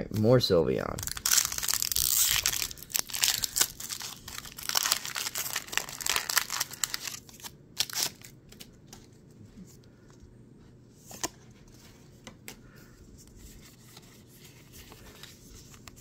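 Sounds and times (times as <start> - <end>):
foil wrapper crinkling and tearing: 1.0 - 8.7.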